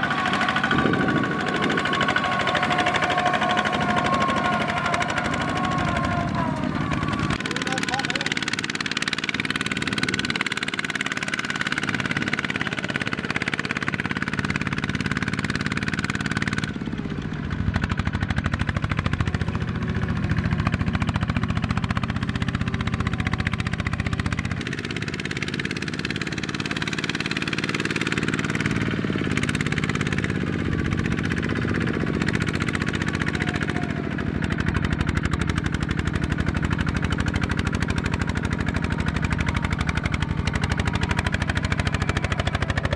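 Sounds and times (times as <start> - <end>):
diesel engine chugging under load: 0.0 - 42.9.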